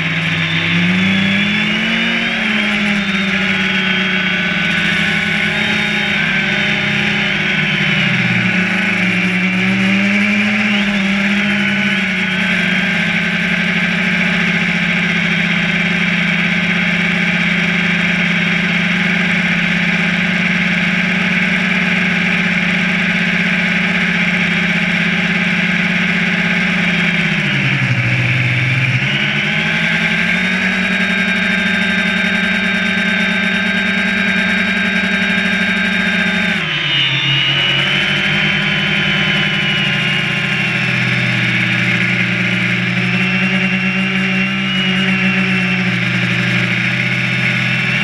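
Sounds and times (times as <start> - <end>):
drone propellers whining: 0.0 - 48.0.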